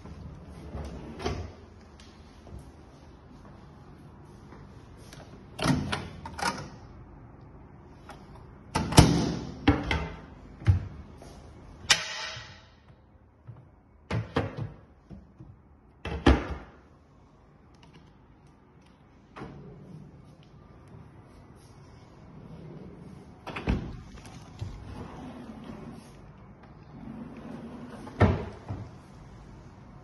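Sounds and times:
cupboard doors opening and shutting: 0.7s - 1.6s, 23.4s - 26.1s, 26.9s - 29.1s.

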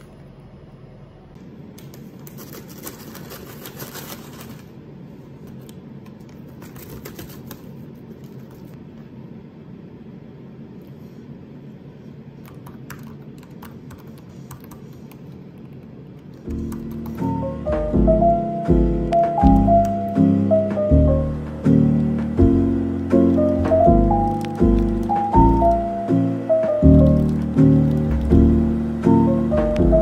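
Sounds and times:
room hum: 0.0s - 30.0s
hands clicking and tapping at desk: 5.6s - 8.7s
laptop keystrokes: 12.4s - 17.3s, 23.3s - 25.8s, 26.9s - 28.4s.

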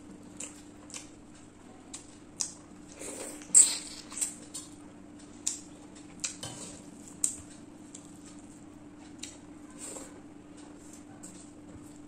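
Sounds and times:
wet eating smacks and clicks: 0.4s - 1.2s.

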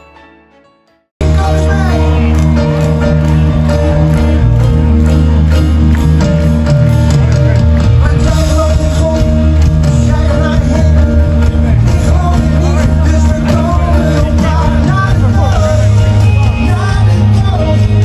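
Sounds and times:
person singing: 1.2s - 4.8s, 7.9s - 18.0s
electric guitar: 1.2s - 18.0s
strong bass: 1.2s - 18.0s.

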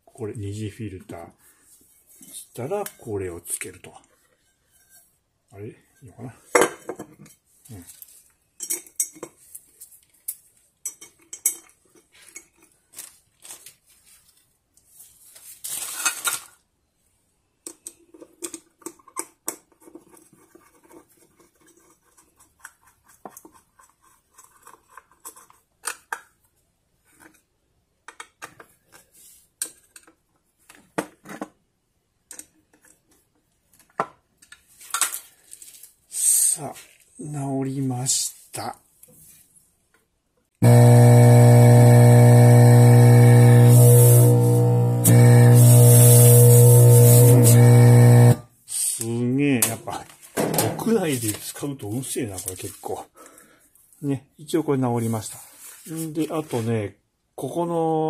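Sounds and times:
plastic parts clicking and knocking: 17.6s - 35.3s.

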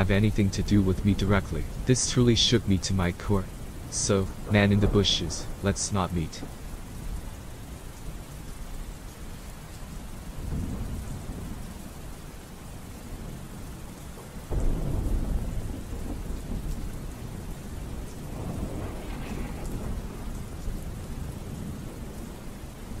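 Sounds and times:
thunder rumbling: 0.0s - 7.8s, 10.3s - 12.0s, 14.2s - 23.0s
steady rainfall: 0.0s - 23.0s.

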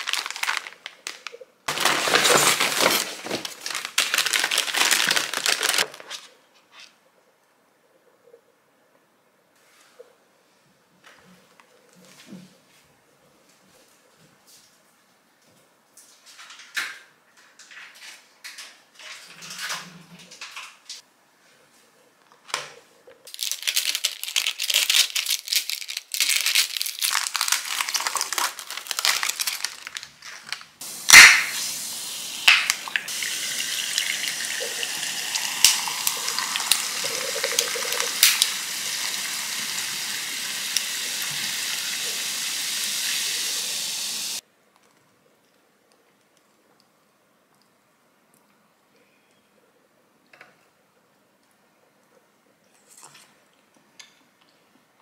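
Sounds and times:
plastic wrapping crinkling: 0.0s - 6.3s, 23.3s - 31.6s, 34.7s - 39.1s
sharp crack: 31.0s - 31.7s, 32.4s - 33.1s, 38.2s - 38.5s
soda poured over ice fizzing: 31.1s - 42.2s.

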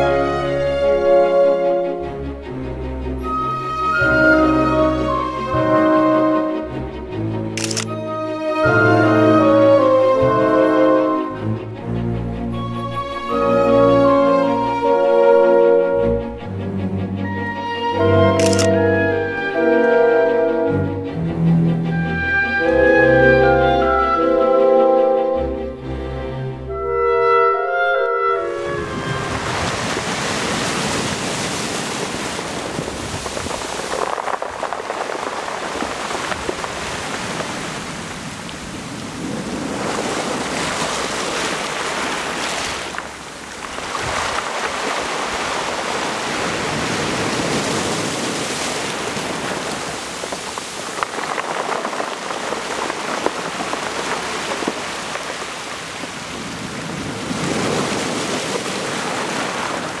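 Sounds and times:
waves breaking on pebbles: 28.8s - 60.0s.

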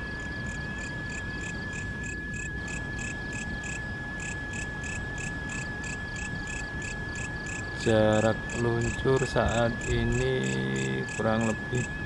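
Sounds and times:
insect high whine: 0.0s - 12.0s
insect pulsed chirp: 0.0s - 12.0s.

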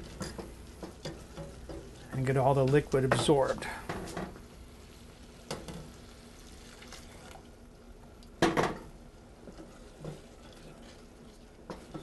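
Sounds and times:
rice simmering in a saucepan: 0.0s - 12.0s.

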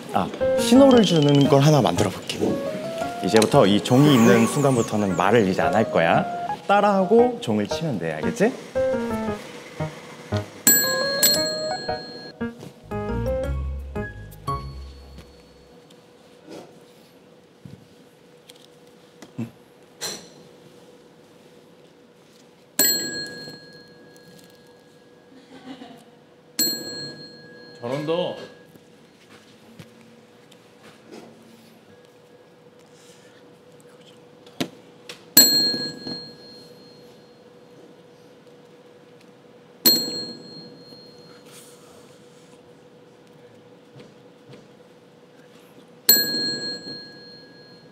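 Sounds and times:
desk service bell ding: 0.6s - 3.6s, 10.7s - 12.4s, 22.8s - 24.2s, 26.6s - 28.1s, 35.4s - 37.2s, 39.9s - 41.4s, 46.1s - 47.9s.

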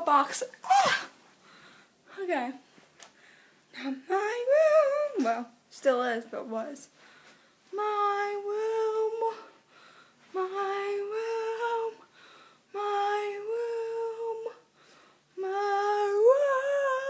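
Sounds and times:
breaths between notes: 1.4s - 2.0s, 9.6s - 10.2s, 12.1s - 12.7s
girl singing long held notes: 3.8s - 5.4s, 7.7s - 9.7s, 10.3s - 17.0s.

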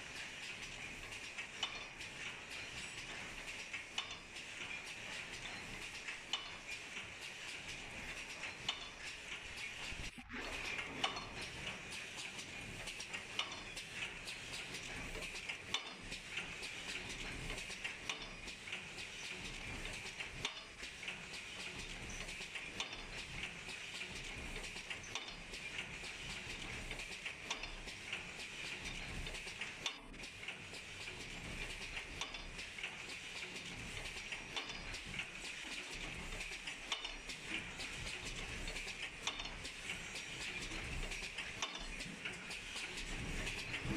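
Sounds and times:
paper cup forming machine clatter: 0.0s - 43.9s.

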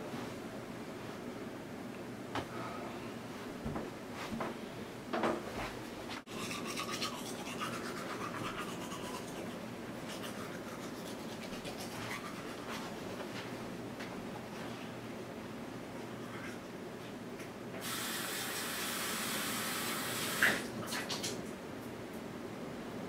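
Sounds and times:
toothbrush scrubbing teeth: 6.3s - 13.2s.

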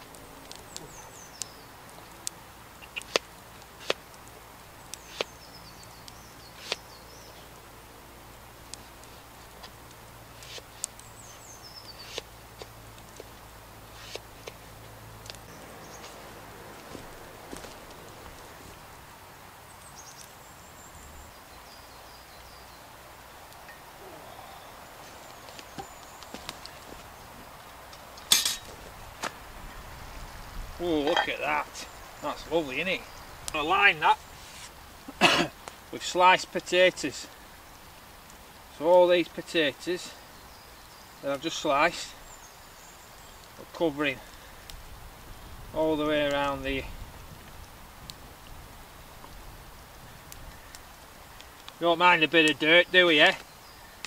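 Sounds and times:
bird singing: 0.0s - 3.3s, 4.6s - 7.7s, 10.4s - 12.7s, 15.4s - 17.0s, 19.6s - 27.8s, 30.1s - 34.4s, 38.8s - 44.6s, 50.5s - 54.0s
soft steady hiss: 0.0s - 54.0s
faint high bird chirps: 2.8s - 3.2s.

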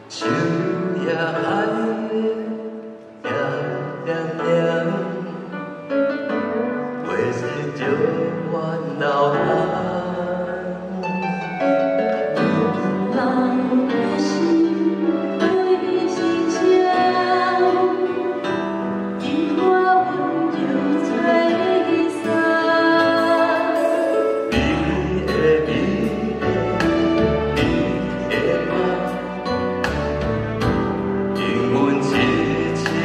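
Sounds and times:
man and woman singing duet: 0.0s - 5.6s, 6.5s - 11.6s, 12.3s - 33.0s
instrumental accompaniment: 5.2s - 33.0s
bass: 24.5s - 33.0s.

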